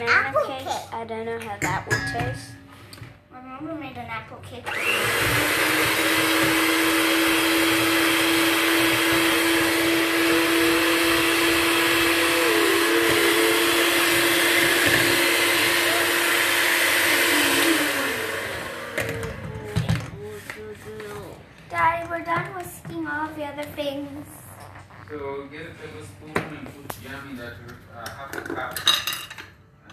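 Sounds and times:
electric hand mixer whirring: 0:04.6 - 0:21.1
beaters whisking batter in metal bowl: 0:04.7 - 0:20.5.

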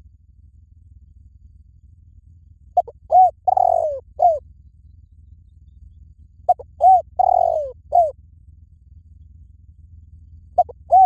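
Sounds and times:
dove cooing: 0:02.8 - 0:04.4, 0:06.5 - 0:08.2, 0:10.5 - 0:11.0.

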